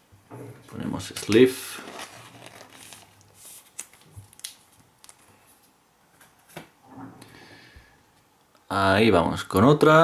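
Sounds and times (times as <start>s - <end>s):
card sleeve rustling: 1.2s - 5.2s.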